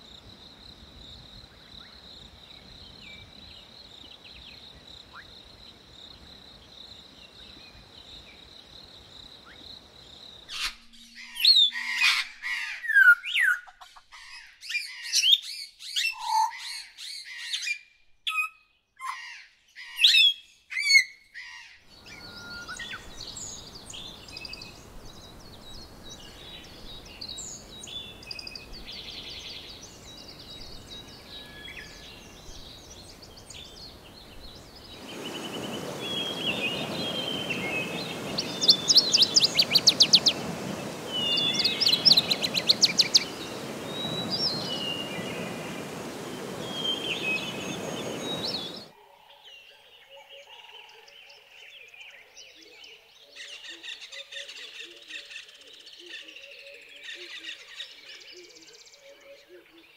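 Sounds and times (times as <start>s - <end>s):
faint hiss: 21.9s - 48.9s.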